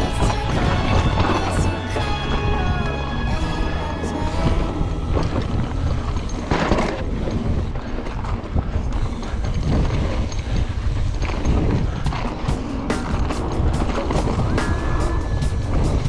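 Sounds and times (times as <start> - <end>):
bike rumbling and rattling on trail: 0.0 - 16.0
wind buffeting microphone: 0.0 - 16.0
bike clatter: 5.1 - 16.0.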